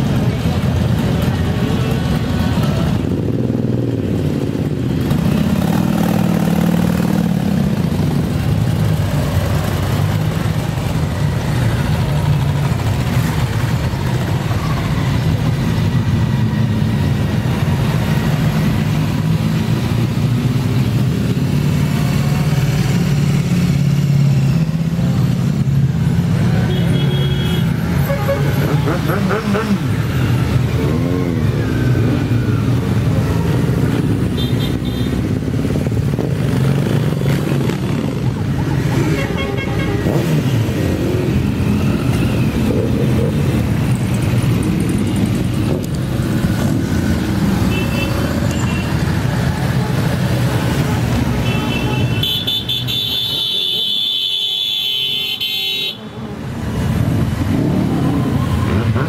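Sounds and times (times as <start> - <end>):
motorcycles riding past: 0.0 - 52.1, 56.2 - 59.0.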